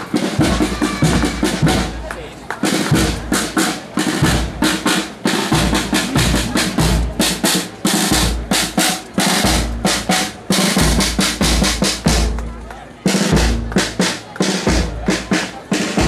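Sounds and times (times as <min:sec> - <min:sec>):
snare drum rolls and rimshots: 0:00.0 - 0:16.0.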